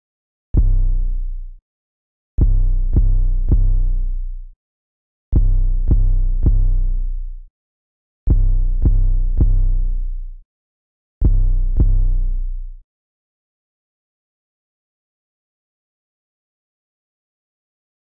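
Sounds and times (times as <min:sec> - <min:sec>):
deep bass hits: 0:00.6 - 0:01.3, 0:02.4 - 0:04.0, 0:05.4 - 0:07.0, 0:08.3 - 0:09.9, 0:11.2 - 0:12.4.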